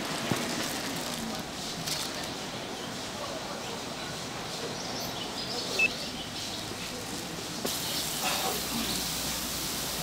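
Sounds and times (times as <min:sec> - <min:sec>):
oil sizzling in a deep fryer: 0:07.7 - 0:10.0.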